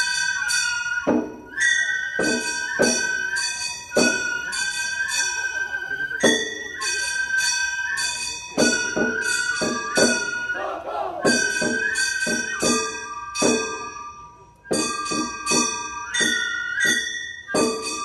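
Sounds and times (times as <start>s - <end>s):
flute: 0.0s - 18.0s
drum strokes: 8.5s - 14.0s.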